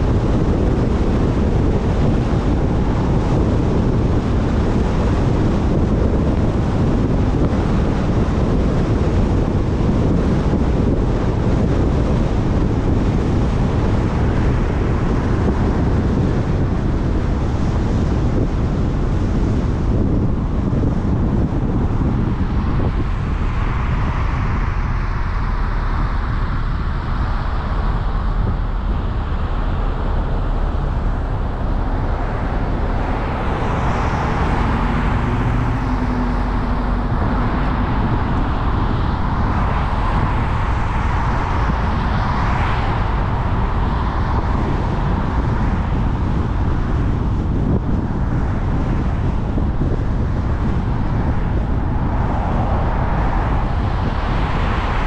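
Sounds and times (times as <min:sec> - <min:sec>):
car road noise: 0:00.0 - 0:55.0
passing traffic: 0:00.0 - 0:55.0.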